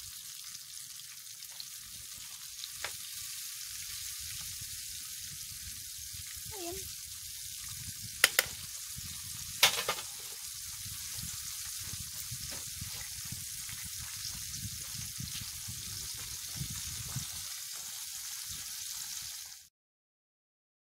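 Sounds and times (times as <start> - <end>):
fish sizzling in oil: 0.0 - 19.7
metal tongs clicking on pan: 8.2 - 8.5.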